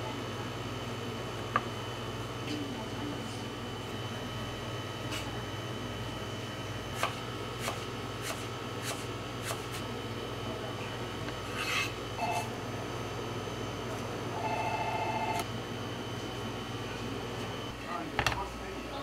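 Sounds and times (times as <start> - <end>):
kitchen hum: 0.0 - 19.0.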